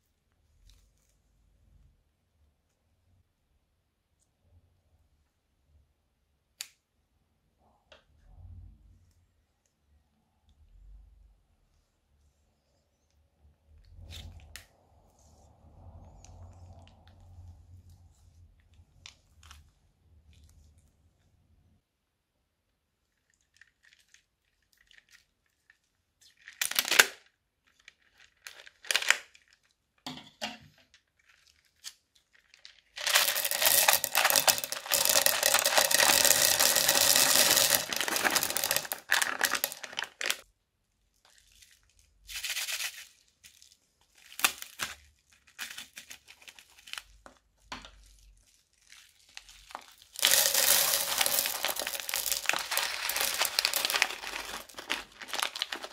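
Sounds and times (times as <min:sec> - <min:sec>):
plastic beads spilling: 0:26.3 - 0:27.1, 0:28.2 - 0:29.4, 0:32.4 - 0:40.4, 0:49.3 - 0:55.9
plastic bags crinkling: 0:26.4 - 0:29.6, 0:32.3 - 0:40.4, 0:48.0 - 0:55.9.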